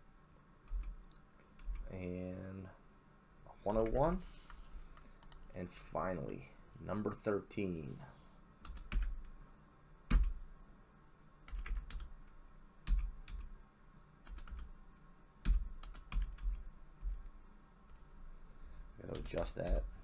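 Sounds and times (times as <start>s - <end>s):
computer keyboard typing: 0.6s - 1.9s, 8.6s - 9.3s, 10.1s - 10.4s, 11.5s - 13.5s, 14.2s - 14.7s, 15.4s - 17.3s, 19.1s - 19.9s.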